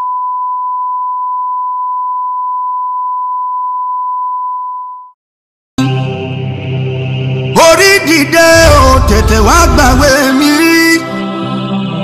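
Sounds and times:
music: 0:05.8 - 0:12.0.

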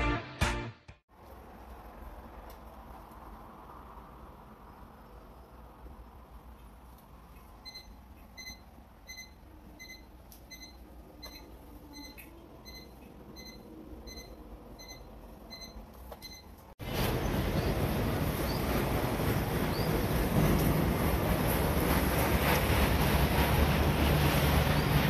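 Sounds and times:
loud steady rushing noise: 0:16.8 - 0:25.0.

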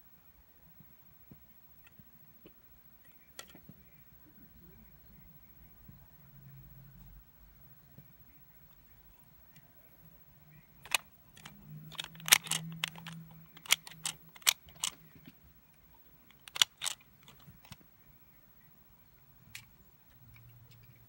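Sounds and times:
plastic toy clicking: 0:10.8 - 0:15.0, 0:16.3 - 0:17.8.

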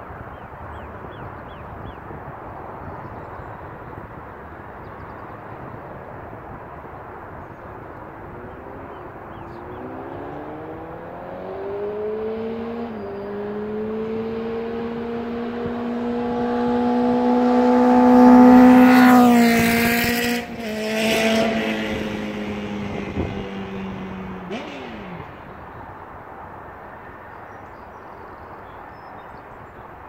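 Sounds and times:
motorcycle accelerating past: 0:08.2 - 0:26.2.

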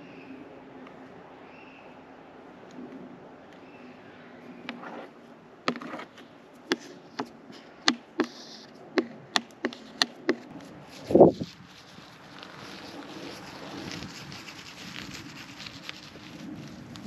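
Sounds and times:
sharp taps: 0:06.7 - 0:10.4.

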